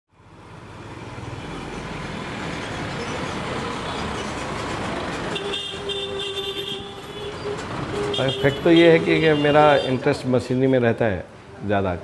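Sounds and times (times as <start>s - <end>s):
road traffic engines: 0.1s - 12.0s
vehicle horn honking: 5.3s - 10.0s.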